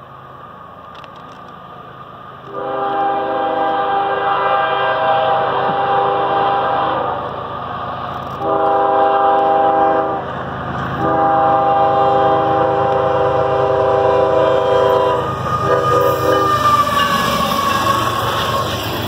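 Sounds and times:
train rumbling: 0:00.0 - 0:19.0
locomotive air horn blasts: 0:02.5 - 0:07.3, 0:08.4 - 0:10.3, 0:11.0 - 0:17.2.

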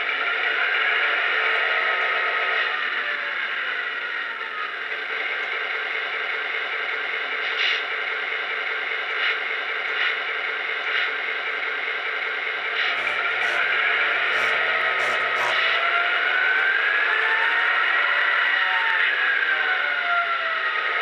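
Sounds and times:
model locomotive engine hum: 0:00.0 - 0:21.0
sound winding down in pitch: 0:12.9 - 0:18.9.

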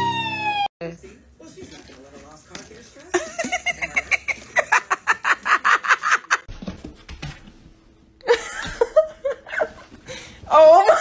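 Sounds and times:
people laughing: 0:03.1 - 0:06.5.

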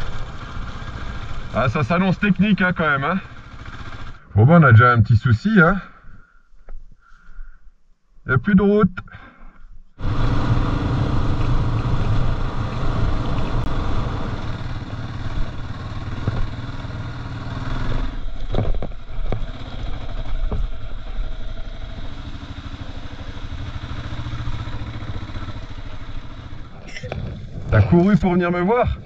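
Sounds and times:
motorcycle engine running: 0:00.0 - 0:04.3, 0:10.0 - 0:29.0
motorcycle jolting over stones: 0:18.2 - 0:21.8.

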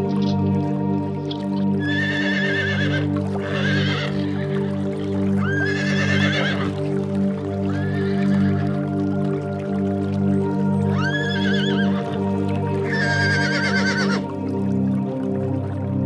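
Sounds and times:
background music: 0:00.0 - 0:16.0
high wavering animal calls: 0:01.8 - 0:04.6, 0:07.7 - 0:08.6, 0:10.9 - 0:12.0, 0:12.8 - 0:14.2.

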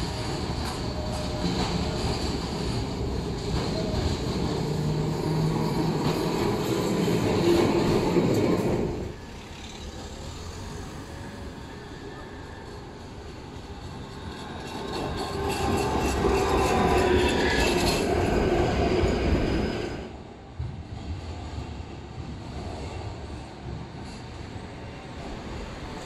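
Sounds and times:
distant tram approaching: 0:00.0 - 0:26.0
tram wheels rumbling on rails: 0:00.0 - 0:26.0.

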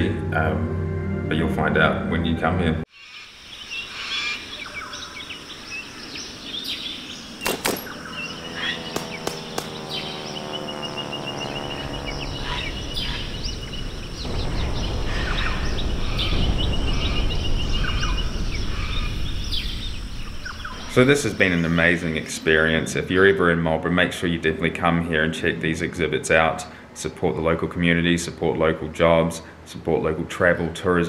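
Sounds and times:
birds chirping and trilling: 0:02.9 - 0:23.8
drawn-out falling tone: 0:07.0 - 0:22.9
sharp clicks: 0:07.4 - 0:08.0, 0:08.9 - 0:09.8
low rumble: 0:08.1 - 0:22.8.

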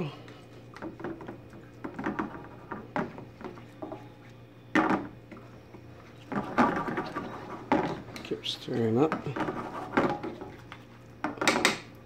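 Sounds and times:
faint steady hum: 0:00.0 - 0:12.0
utensil scraping a skillet: 0:06.0 - 0:08.2, 0:09.0 - 0:10.7.

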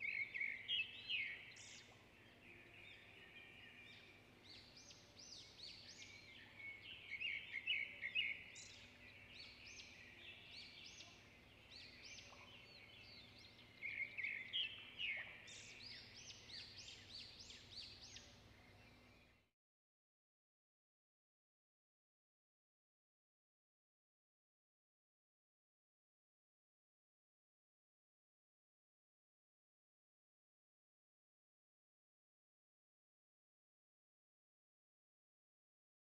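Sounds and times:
small birds chirping: 0:00.0 - 0:19.5.

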